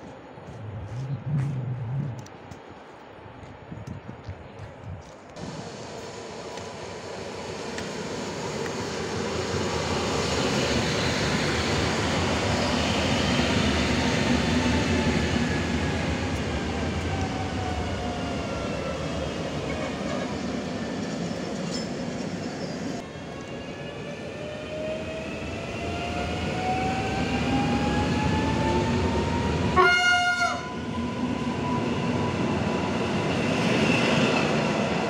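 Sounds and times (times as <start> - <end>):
train running noise: 0.0 - 35.0.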